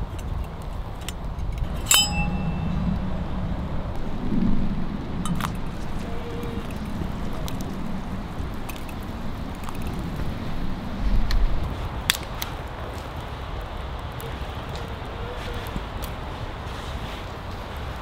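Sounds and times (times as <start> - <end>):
wind rumble on microphone: 0.0 - 18.0
metallic clink of can: 1.8 - 2.6.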